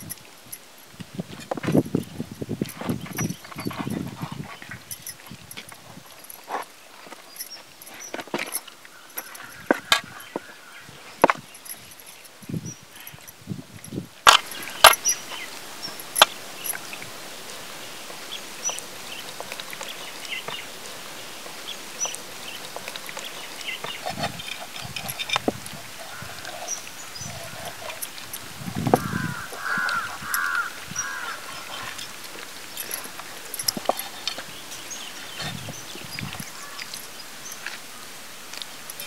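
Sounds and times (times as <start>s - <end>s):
birds chirping: 1.7s - 39.0s.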